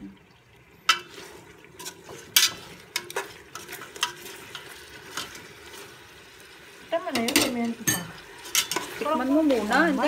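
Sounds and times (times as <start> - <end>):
faint frying sizzle: 0.0 - 10.0
utensil scraping metal pot: 0.9 - 6.2, 7.1 - 10.0.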